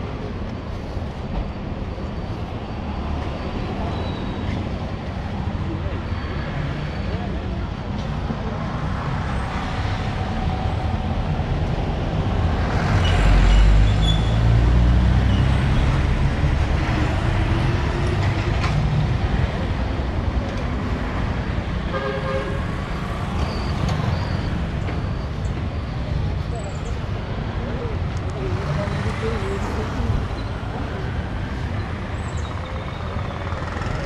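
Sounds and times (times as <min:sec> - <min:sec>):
street traffic: 0:00.0 - 0:34.0
vehicle horn toot: 0:21.9 - 0:22.7.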